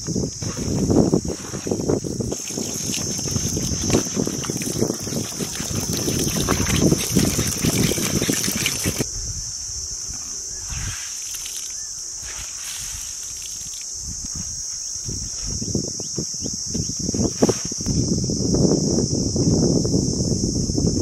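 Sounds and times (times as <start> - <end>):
water pouring into plastic bowl: 2.3 - 9.0.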